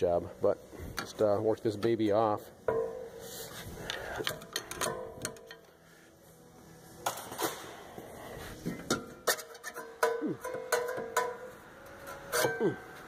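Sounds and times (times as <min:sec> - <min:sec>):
metal clanks and scraping: 0:00.9 - 0:05.8, 0:08.5 - 0:13.0.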